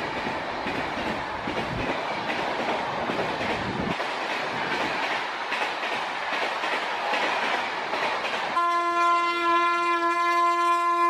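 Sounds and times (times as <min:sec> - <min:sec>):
train wheels clattering on rails: 0:00.0 - 0:11.0
train horn blast: 0:08.6 - 0:11.0.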